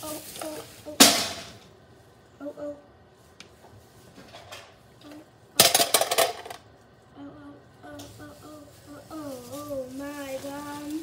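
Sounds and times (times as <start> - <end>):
plastic bag crinkling: 0.0 - 1.6, 8.0 - 11.0.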